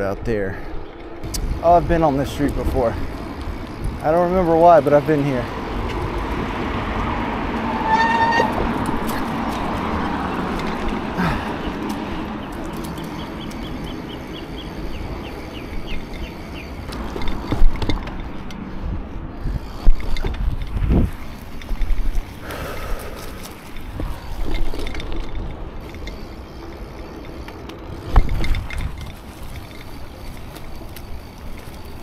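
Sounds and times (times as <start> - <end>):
bike tyre and road noise: 0.0 - 32.0
wind on microphone: 0.2 - 4.6, 16.9 - 25.9.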